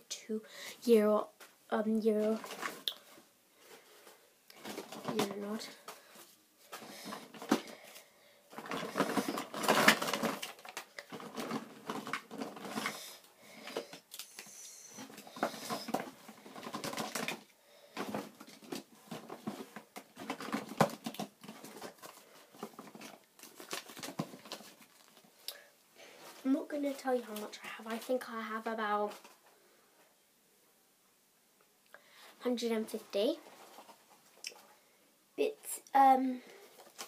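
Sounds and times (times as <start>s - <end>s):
paper and packets rustling: 1.4s - 3.1s, 3.7s - 29.4s, 32.8s - 34.3s, 36.7s - 37.0s.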